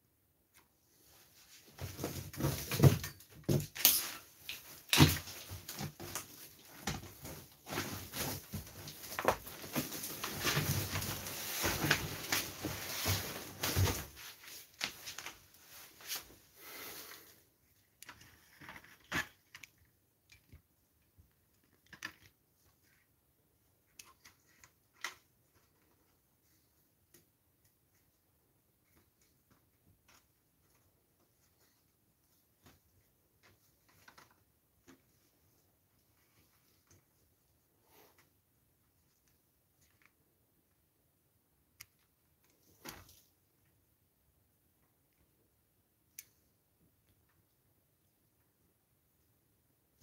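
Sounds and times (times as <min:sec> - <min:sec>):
objects rustling and clattering: 0:01.0 - 0:17.4.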